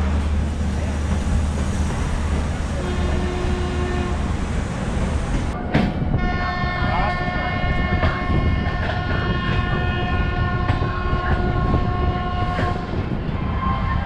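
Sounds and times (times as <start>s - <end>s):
train coach rumbling on track: 0.0s - 14.0s
train horn blast: 2.8s - 4.3s, 6.2s - 14.0s.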